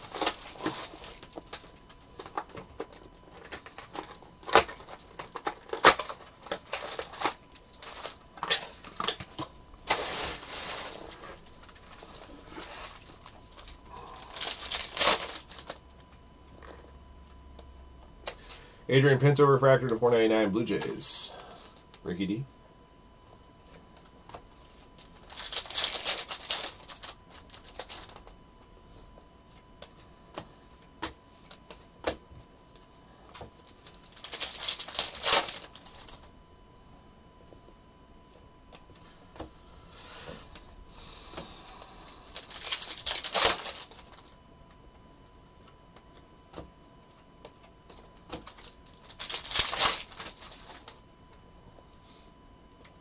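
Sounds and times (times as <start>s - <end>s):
card packs crinkling: 0.0s - 16.9s, 24.5s - 28.4s, 33.3s - 36.3s, 41.6s - 44.4s, 47.9s - 51.2s.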